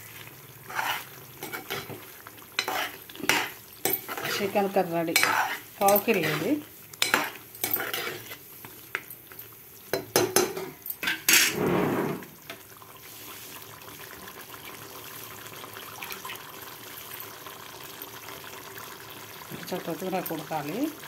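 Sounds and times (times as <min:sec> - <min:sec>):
curry simmering and bubbling: 0:00.0 - 0:10.7, 0:11.6 - 0:21.0
spoon scraping pot: 0:00.7 - 0:02.0, 0:02.6 - 0:08.4, 0:10.0 - 0:12.2
metal spoon clinking in pot: 0:02.6 - 0:04.4, 0:05.2 - 0:06.4, 0:07.0 - 0:08.2.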